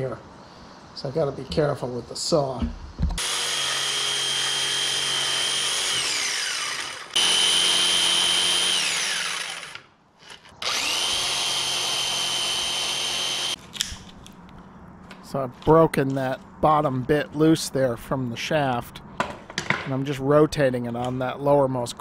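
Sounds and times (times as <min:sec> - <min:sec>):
jigsaw motor whine: 0:03.2 - 0:13.6.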